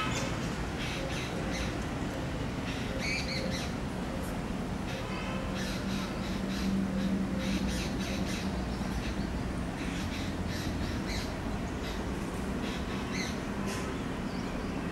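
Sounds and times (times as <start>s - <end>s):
birds calling harshly: 4.9s - 14.8s.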